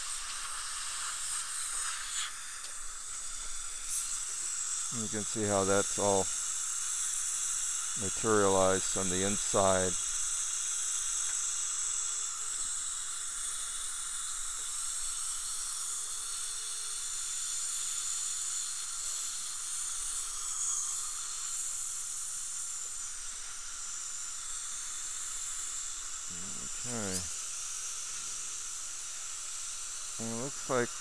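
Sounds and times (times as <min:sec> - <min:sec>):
hiss of air and water spray: 0:00.0 - 0:06.4
dental drill running: 0:00.0 - 0:31.0.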